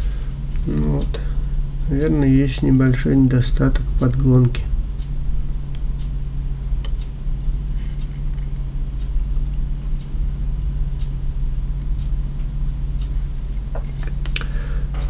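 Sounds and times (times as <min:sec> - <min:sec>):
steady low hum: 0:00.0 - 0:15.0.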